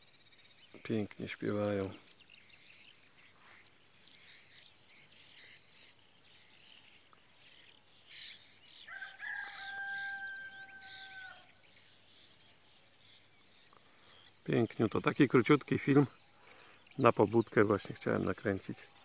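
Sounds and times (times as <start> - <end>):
songbirds chirping: 0.0 - 19.0
rooster crowing: 8.9 - 11.6.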